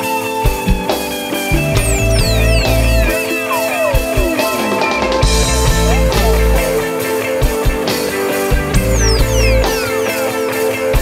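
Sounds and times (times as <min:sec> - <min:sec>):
rock music with guitar and drums: 0:00.0 - 0:11.0
deep bass: 0:01.6 - 0:03.2, 0:05.2 - 0:06.8, 0:08.6 - 0:09.8
falling pitch sweep: 0:01.8 - 0:05.4, 0:08.8 - 0:10.1.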